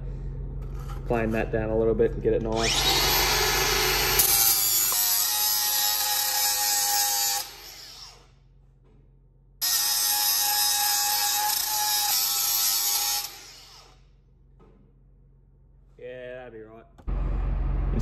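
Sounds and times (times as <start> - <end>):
angle grinder cutting steel pipe: 2.5 - 8.3, 9.6 - 14.0.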